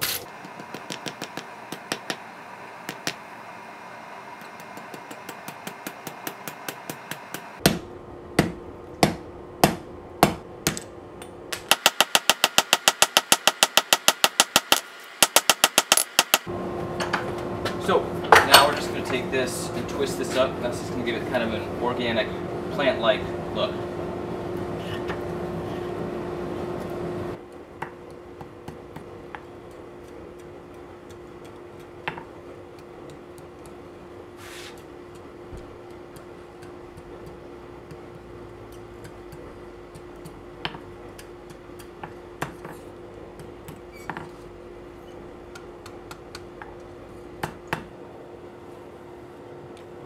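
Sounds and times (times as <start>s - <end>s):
steady low hum: 0.0s - 13.6s, 16.2s - 50.0s
hammer tapping on anvil: 35.1s - 43.8s.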